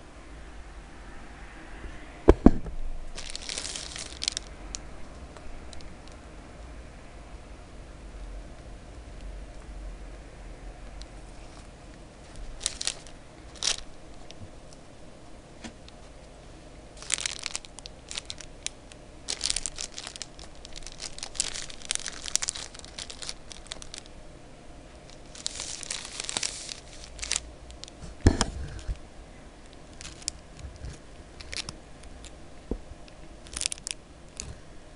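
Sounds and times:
plastic wrapper crinkling: 3.1s - 6.2s, 11.0s - 14.8s, 17.0s - 24.2s, 24.9s - 29.0s, 29.6s - 32.4s, 33.1s - 34.6s.

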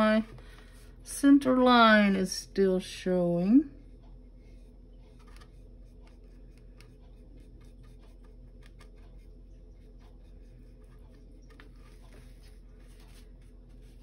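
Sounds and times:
low steady hum: 0.0s - 14.0s
paintbrush strokes on wood: 3.7s - 14.0s.

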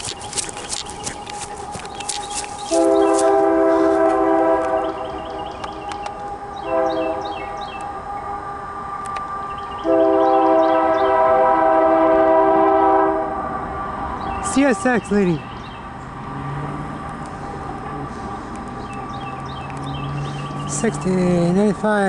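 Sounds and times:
locomotive air horn blasts: 2.7s - 5.5s, 6.6s - 8.5s, 9.8s - 13.5s.

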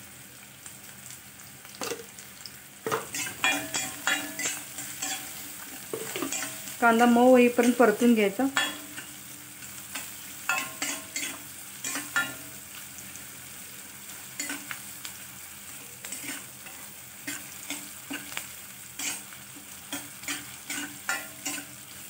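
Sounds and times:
onions sizzling in oil: 0.0s - 22.0s
spatula scraping pan: 2.9s - 8.0s, 9.9s - 12.5s, 14.1s - 15.0s, 16.0s - 22.0s.

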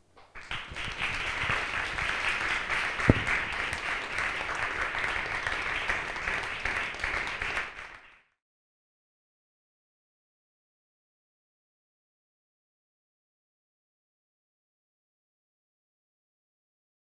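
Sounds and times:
crowd applauding: 0.3s - 8.3s
sharp thump: 3.1s - 3.4s.

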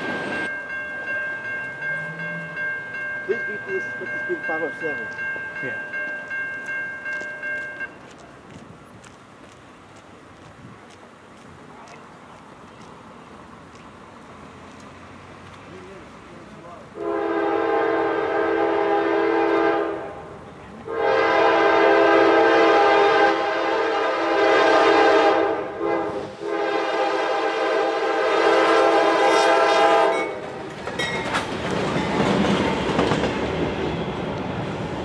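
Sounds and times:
locomotive engine and wheels passing: 0.0s - 20.9s, 28.3s - 35.0s
locomotive air horn blasts: 17.0s - 20.2s, 20.9s - 30.4s.

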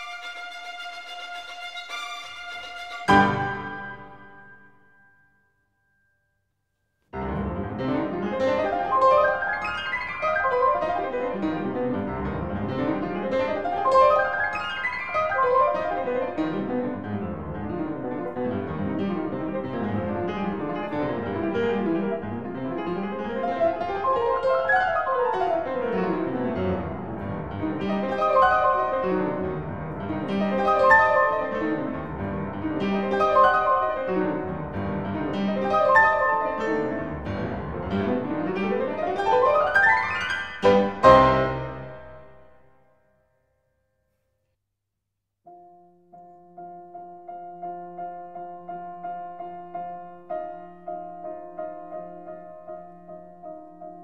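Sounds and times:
piano fast runs: 7.2s - 42.3s.

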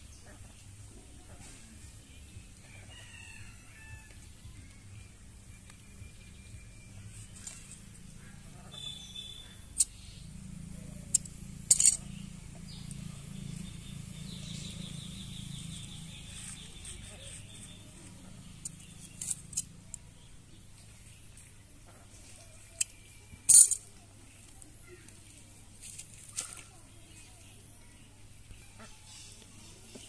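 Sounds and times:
small metal tools clicking: 11.1s - 12.0s, 18.6s - 20.0s, 22.8s - 23.9s.

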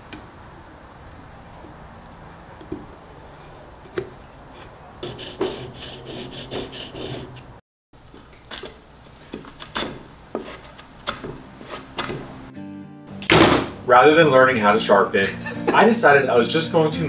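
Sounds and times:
chisel rubbing on whetstone: 4.6s - 7.6s, 10.3s - 10.8s, 11.6s - 11.9s
chisel slicing wood: 9.3s - 12.3s.

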